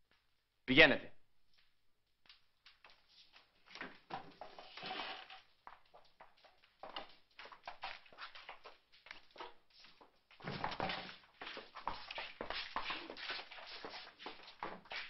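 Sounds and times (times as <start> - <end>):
knocks and clatter of desks: 10.4 - 11.4.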